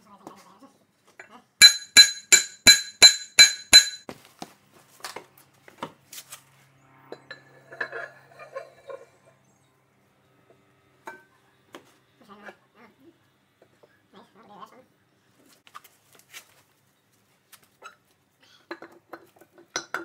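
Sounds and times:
hammer ringing on steel: 1.6s - 4.1s
heavy steel parts scraping: 7.2s - 9.4s.

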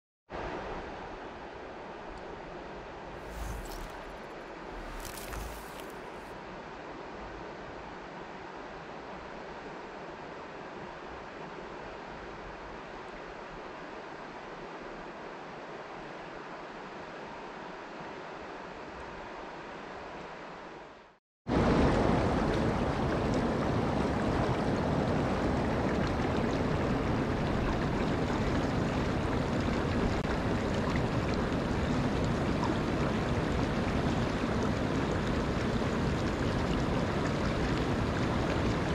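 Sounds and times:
quieter river sound: 0.4s - 38.9s
stream rippling over stones: 3.2s - 6.3s, 22.4s - 38.9s.

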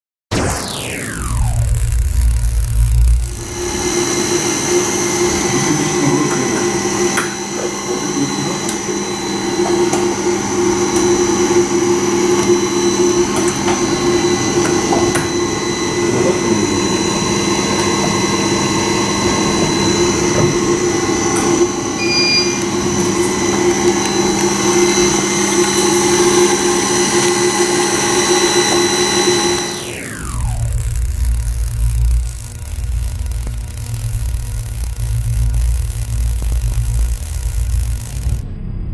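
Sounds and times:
servo motors humming and whining: 0.6s - 38.4s
short electronic beep: 22.0s - 23.0s.

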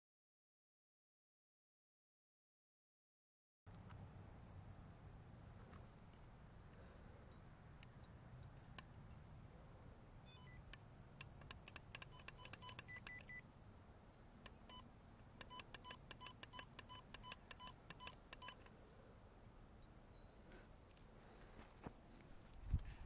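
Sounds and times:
walkie-talkie key beeps: 10.3s - 10.7s, 11.4s - 13.4s, 14.4s - 18.7s
button clicks: 10.4s - 13.4s, 15.4s - 18.7s.

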